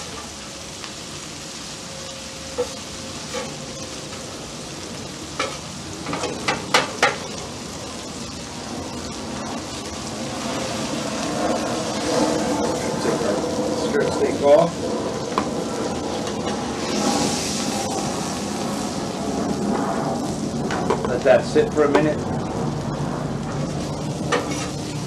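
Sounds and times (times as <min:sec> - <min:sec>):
meat and onions sizzling on griddle: 0:00.0 - 0:25.0
metal spatulas scraping griddle: 0:24.3 - 0:24.8.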